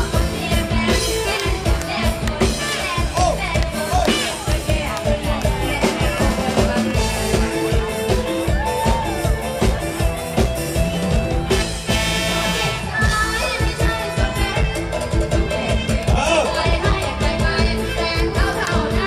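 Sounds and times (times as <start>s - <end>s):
woman singing into microphone: 0.0s - 7.7s, 12.8s - 19.0s
drum kit beat: 0.0s - 19.0s.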